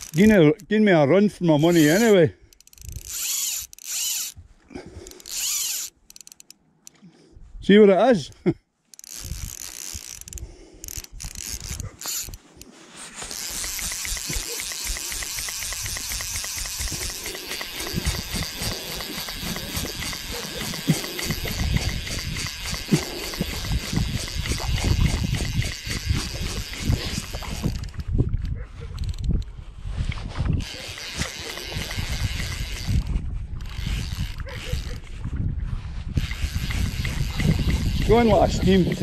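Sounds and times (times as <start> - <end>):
fishing reel ratchet ticking: 0.0 - 0.7, 1.4 - 4.4, 5.0 - 7.0, 8.9 - 28.1, 28.9 - 29.5, 30.6 - 35.0, 36.2 - 39.0
wind on microphone: 9.2 - 12.4, 13.4 - 39.0.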